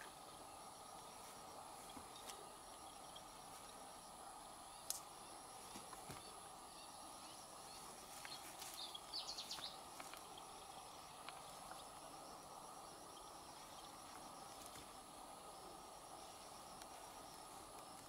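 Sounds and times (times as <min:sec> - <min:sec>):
high steady whine: 0:00.0 - 0:18.0
insect-like hum: 0:00.0 - 0:18.0.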